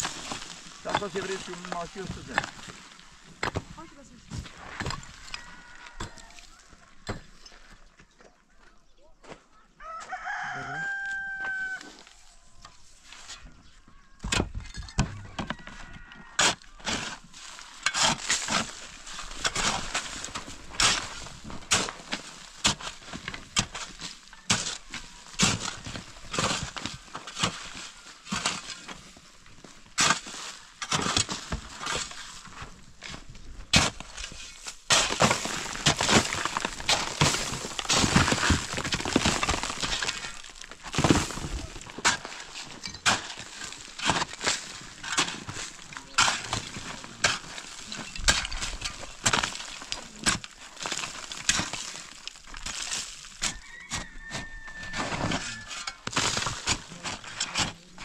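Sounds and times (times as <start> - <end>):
rooster crowing: 5.1 - 6.9, 9.8 - 12.1, 14.8 - 16.8, 53.5 - 55.9
wood breaking knocks and cracks: 34.9 - 53.5.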